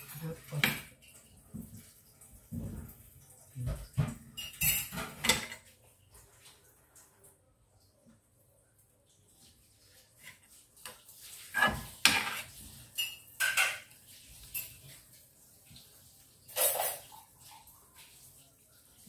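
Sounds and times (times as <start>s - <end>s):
metal spatula scraping frying pan: 11.4s - 14.0s.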